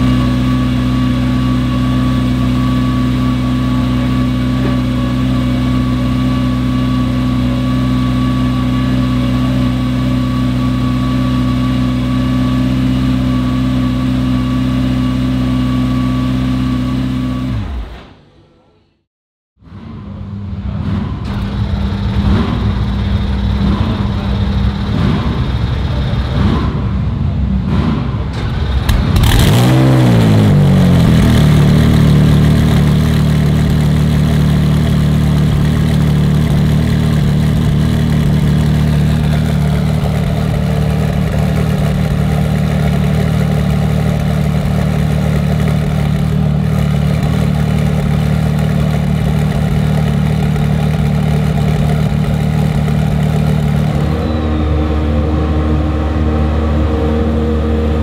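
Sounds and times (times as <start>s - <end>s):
race car engine revving: 19.7s - 58.0s.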